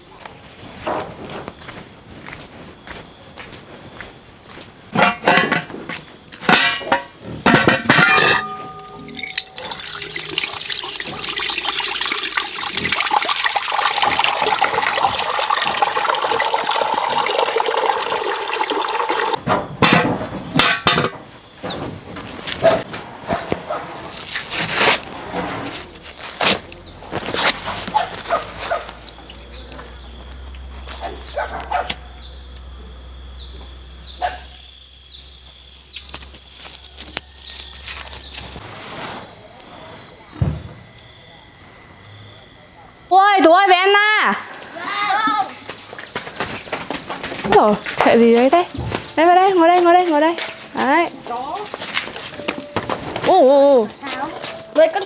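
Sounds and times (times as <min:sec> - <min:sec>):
insects chirping: 0:00.0 - 0:55.0
pot and lid clattering: 0:05.0 - 0:05.7, 0:06.4 - 0:10.4
water running into metal pot: 0:08.1 - 0:19.4.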